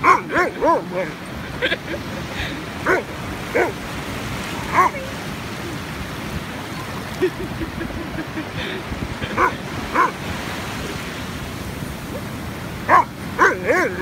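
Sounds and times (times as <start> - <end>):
dog play barks: 0.0 - 1.2, 2.8 - 3.8, 4.6 - 5.1, 9.4 - 10.2, 12.9 - 14.0
surf hiss: 0.0 - 14.0.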